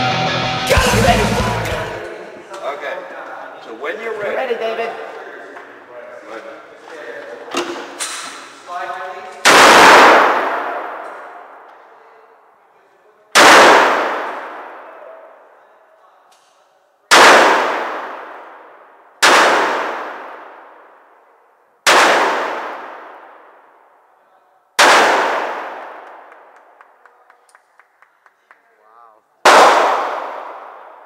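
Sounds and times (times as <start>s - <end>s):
revolver shots echoing indoors: 9.3s - 11.9s, 13.3s - 15.6s, 17.0s - 24.2s, 24.8s - 27.0s, 29.4s - 31.0s.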